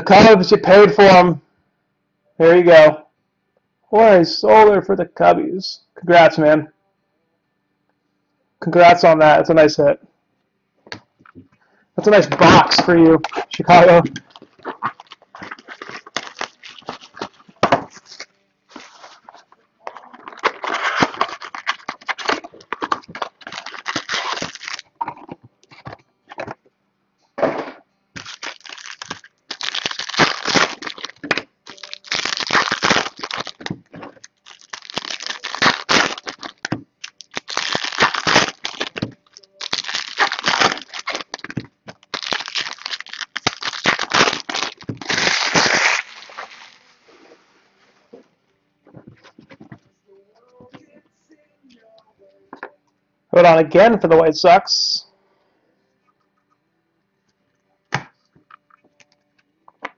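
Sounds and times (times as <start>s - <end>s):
foil wrappers tearing and crinkling: 12.0s - 24.9s, 28.2s - 47.0s.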